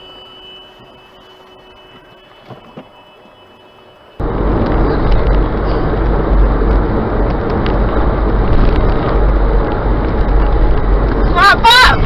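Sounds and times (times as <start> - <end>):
car road and wind noise: 0.0 - 12.0
deep rumble: 4.2 - 12.0.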